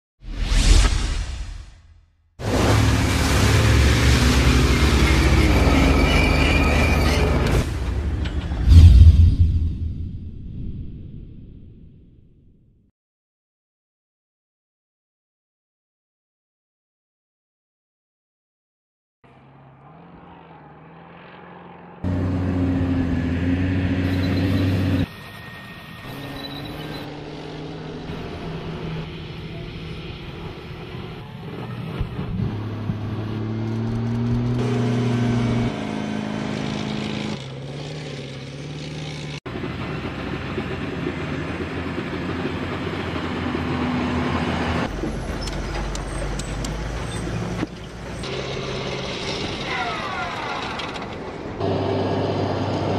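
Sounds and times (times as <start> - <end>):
armoured vehicle engines running: 2.4 - 9.0, 19.3 - 52.9.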